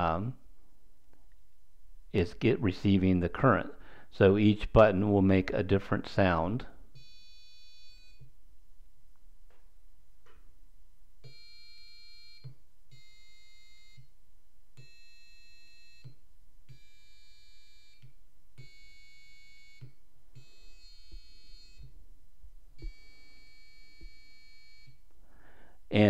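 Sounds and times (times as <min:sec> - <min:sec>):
buzzy electronic buzzer tones: 0:07.0 - 0:08.3, 0:11.2 - 0:14.1, 0:14.8 - 0:22.0, 0:22.8 - 0:25.0.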